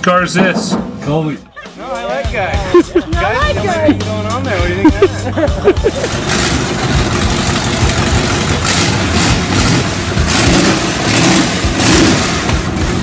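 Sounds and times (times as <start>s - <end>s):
car engine revving: 3.4s - 13.0s.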